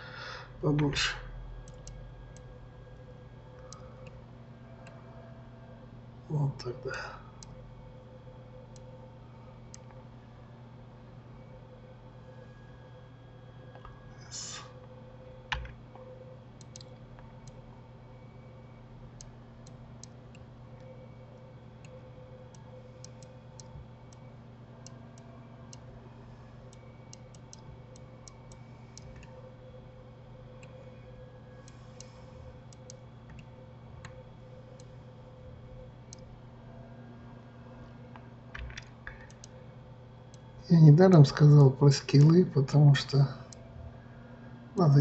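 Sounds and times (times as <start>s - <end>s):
steady low hum: 0.0s - 45.0s
computer mouse clicks: 1.6s - 2.5s, 16.6s - 17.6s, 26.7s - 29.4s, 31.6s - 34.9s, 38.6s - 39.6s.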